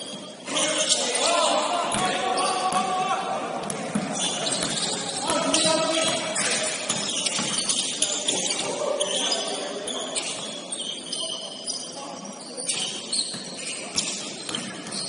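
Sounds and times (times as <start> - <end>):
sneakers squeaking on court: 0.0 - 2.9, 3.6 - 15.0
basketball bouncing: 3.6 - 7.7.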